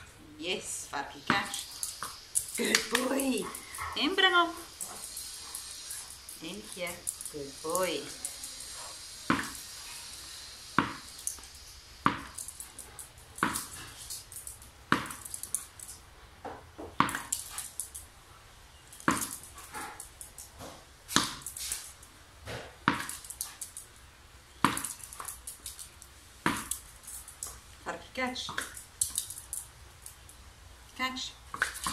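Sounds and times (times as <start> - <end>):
tennis ball bouncing on hard floor: 9.3 - 9.7, 10.8 - 11.3, 12.0 - 12.6, 13.4 - 13.8, 14.9 - 15.5, 16.4 - 17.5, 19.0 - 19.5, 20.6 - 21.6, 22.4 - 23.2, 24.6 - 25.1, 26.4 - 26.8.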